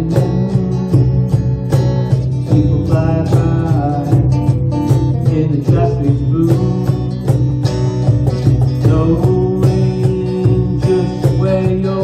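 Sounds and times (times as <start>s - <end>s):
bass: 0.0s - 12.0s
strummed acoustic guitars: 0.0s - 12.0s.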